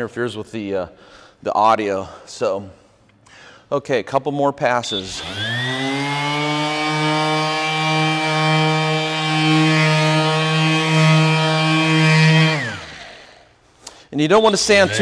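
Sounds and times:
orbital sander motor whine: 4.9 - 13.5, 14.3 - 15.0.

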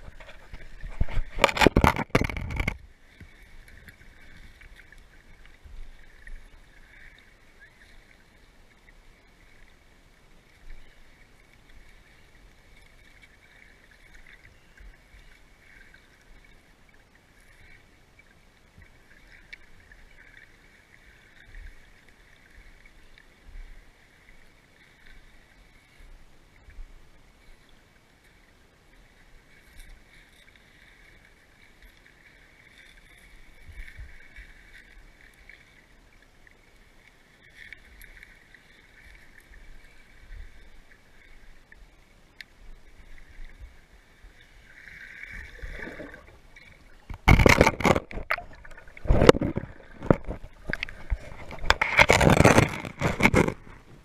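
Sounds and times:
water splashing: 0.0 - 8.3, 42.8 - 54.0.

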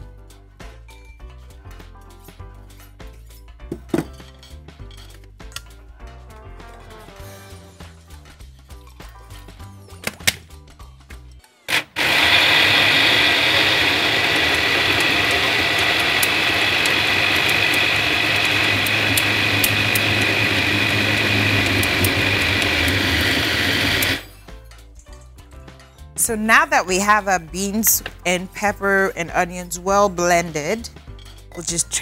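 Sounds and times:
blender running: 11.7 - 24.3.

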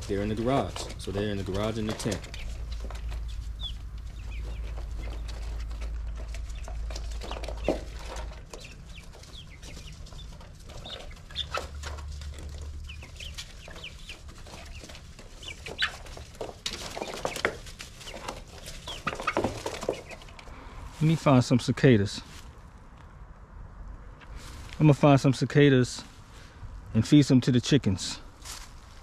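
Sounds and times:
low steady hum: 0.0 - 13.6
chicks cheeping and clucking: 0.0 - 21.5.

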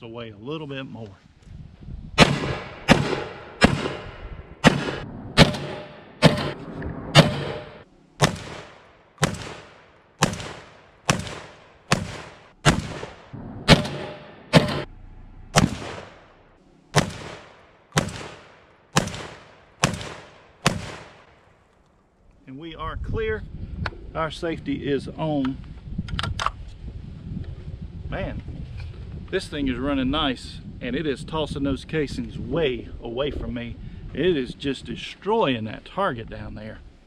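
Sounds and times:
shotgun blasts with echo: 2.2 - 14.9, 15.5 - 21.4.

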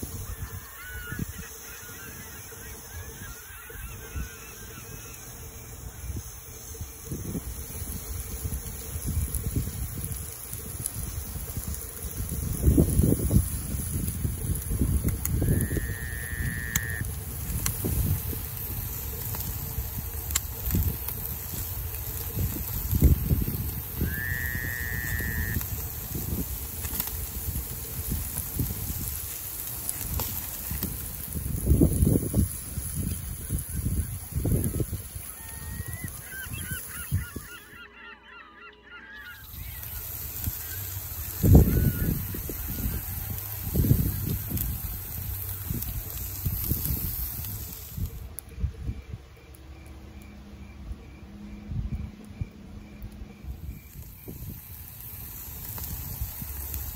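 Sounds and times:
faint hiss: 0.0 - 37.1, 39.2 - 48.4, 53.5 - 56.9
wind buffeting microphone: 0.0 - 37.7, 39.4 - 49.3, 51.6 - 56.9
flock of birds calling: 0.0 - 49.0.

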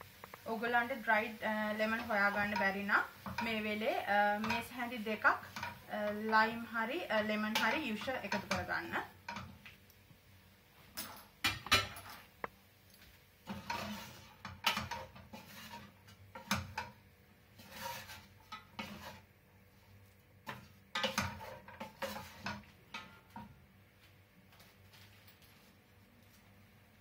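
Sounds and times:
wooden spoon scraping a pot: 1.2 - 9.6, 13.4 - 23.6.

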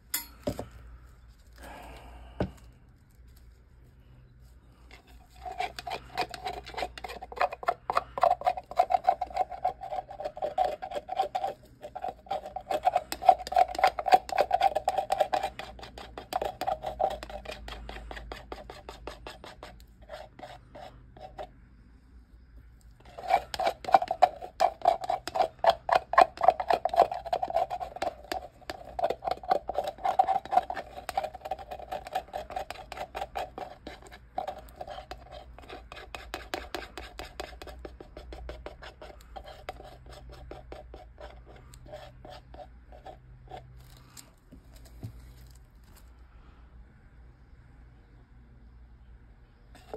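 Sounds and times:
stir stick scraping plastic cup: 4.9 - 21.5, 23.0 - 43.8.

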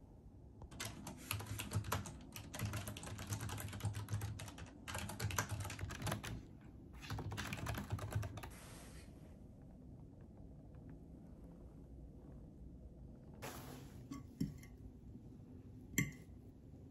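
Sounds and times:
typing on a keyboard: 0.6 - 8.5.

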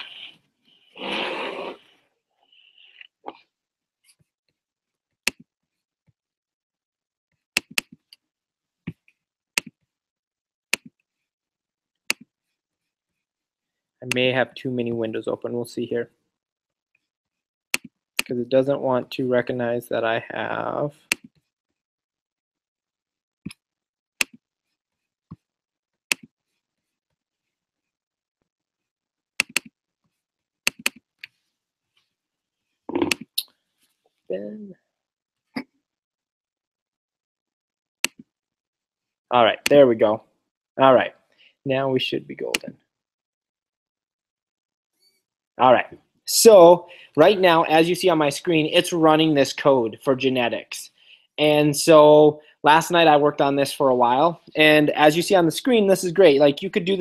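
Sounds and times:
computer mouse clicks: 29.4 - 29.7, 30.7 - 31.4.

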